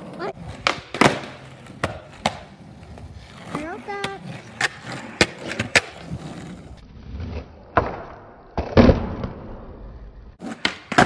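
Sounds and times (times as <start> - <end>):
skateboard clacking on ground: 0.0 - 6.5, 10.4 - 11.0
skateboard wheels rolling on concrete: 0.0 - 11.0.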